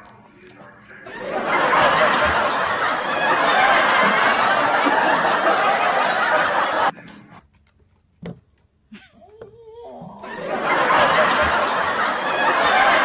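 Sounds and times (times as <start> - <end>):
laugh track crowd laughter: 1.0 - 7.4, 8.9 - 13.0.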